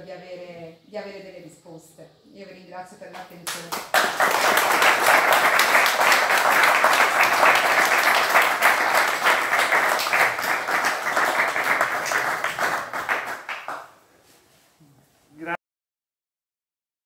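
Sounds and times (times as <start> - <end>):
audience applauding: 3.5 - 13.9.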